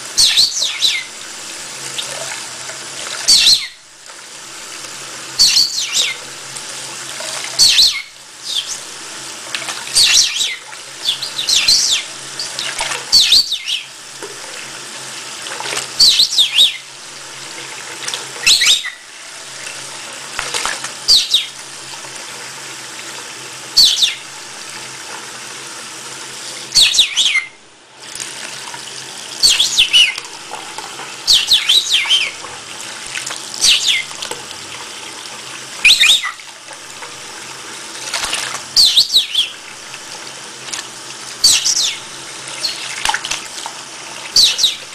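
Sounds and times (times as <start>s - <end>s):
parrot chirping: 0.2s - 1.2s, 3.3s - 3.8s, 5.4s - 6.3s, 7.6s - 8.9s, 10.0s - 13.9s, 16.0s - 16.9s, 18.4s - 19.1s, 21.1s - 21.6s, 23.8s - 24.3s, 26.7s - 27.6s, 29.4s - 30.2s, 31.2s - 32.4s, 33.6s - 34.1s, 35.8s - 36.4s, 38.8s - 39.6s, 41.4s - 42.9s, 44.4s - 44.9s
tap running into sink: 19.6s - 21.0s, 30.1s - 31.2s, 34.1s - 35.4s.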